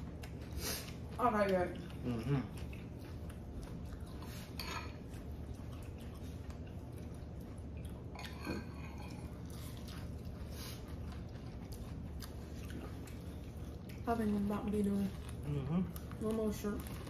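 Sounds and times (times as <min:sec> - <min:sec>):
steady low hum: 0:00.0 - 0:17.0
dishes and cutlery clinking: 0:04.6 - 0:05.0.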